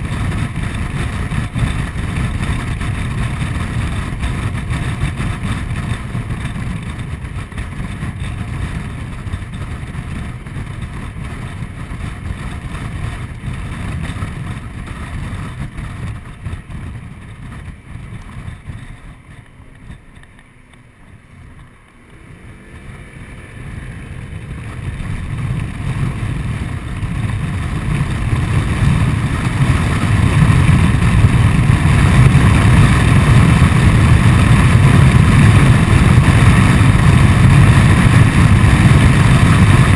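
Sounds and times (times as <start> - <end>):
scooter engine: 0.0 - 39.9
wind rushing: 22.1 - 39.9.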